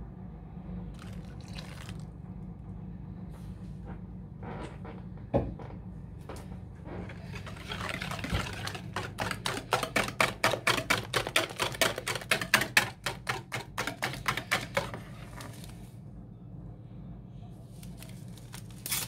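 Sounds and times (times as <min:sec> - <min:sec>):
whisk clicking against bowl: 0:07.3 - 0:15.5.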